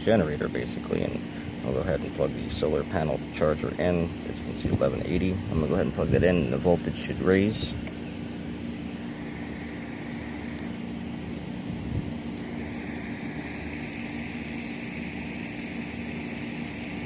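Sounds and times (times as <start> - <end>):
constant hiss: 0.0 - 17.0
low droning hum: 0.0 - 17.0
higher hissing band: 8.9 - 17.0.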